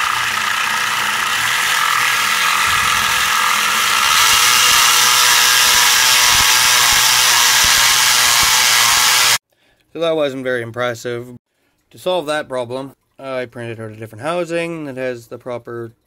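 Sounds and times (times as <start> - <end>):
blower whirring with rattle: 0.0 - 9.4.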